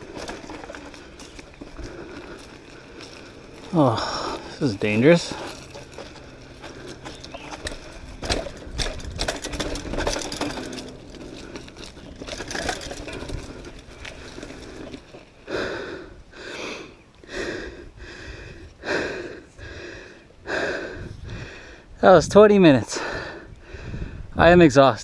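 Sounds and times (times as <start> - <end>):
mountain bike rattling over trail: 0.0 - 24.0
person breathing hard: 0.1 - 4.7, 13.3 - 22.0, 22.8 - 24.3.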